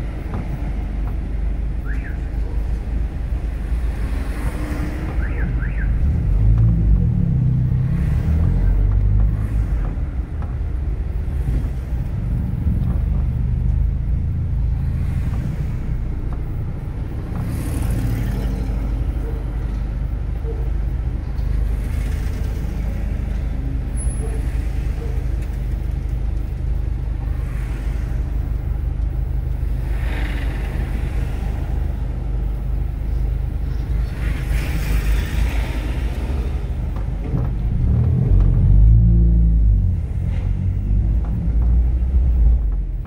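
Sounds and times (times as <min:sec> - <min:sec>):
car engine and road drone: 0:00.0 - 0:43.0
heavy low rumble: 0:06.1 - 0:17.6, 0:36.0 - 0:43.0.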